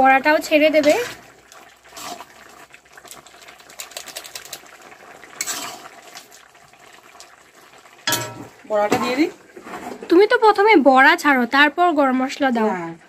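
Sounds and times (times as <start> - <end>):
curry boiling: 0.0 - 13.0
spatula scraping a pan: 1.9 - 2.3, 5.4 - 5.9
metal spatula tapping a pan: 8.1 - 8.6.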